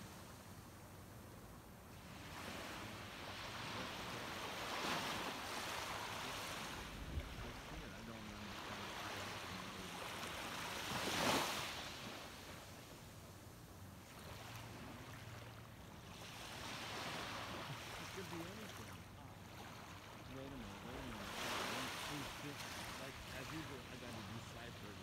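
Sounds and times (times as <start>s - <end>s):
waves lapping on pebble shore: 2.1s - 12.7s, 19.7s - 25.0s.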